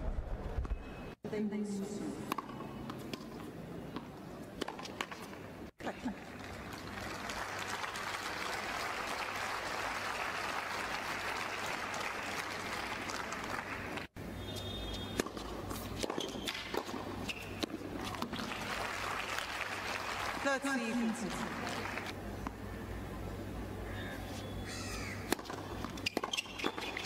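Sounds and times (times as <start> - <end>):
racket hitting tennis ball: 2.3 - 5.4, 15.0 - 18.5, 25.2 - 27.0
crowd applauding on television: 6.2 - 14.1, 18.3 - 22.2.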